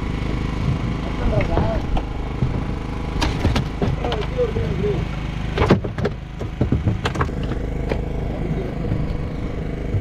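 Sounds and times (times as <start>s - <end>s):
boat engine running: 0.0s - 10.0s
sharp knocks: 1.4s - 4.3s, 5.6s - 8.0s.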